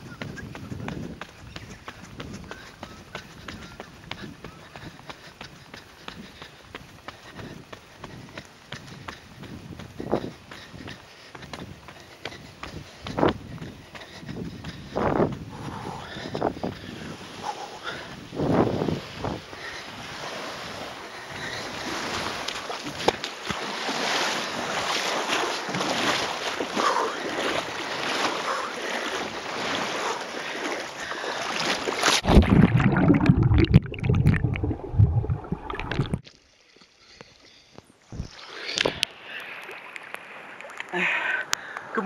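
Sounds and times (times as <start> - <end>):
wind buffeting microphone: 0.0 - 23.2
heavy deep water sloshing: 16.1 - 36.3
water splashing: 19.0 - 37.2, 38.1 - 41.8.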